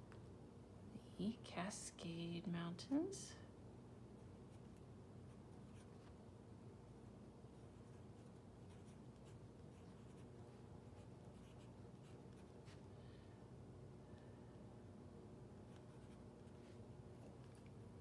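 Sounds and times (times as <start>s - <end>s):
low room hum: 0.0s - 18.0s
pen scratching on paper: 7.6s - 12.8s.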